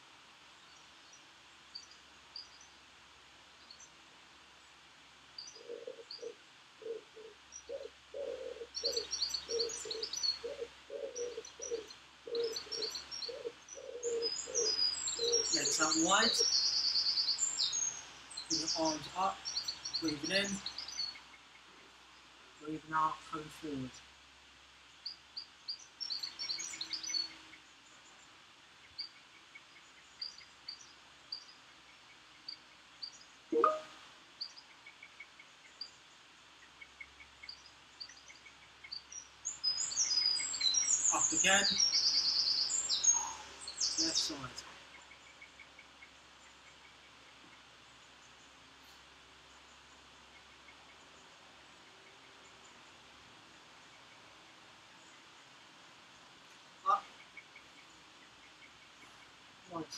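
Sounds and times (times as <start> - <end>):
small birds chirping: 0.0 - 59.9
pigeon cooing: 5.6 - 15.6.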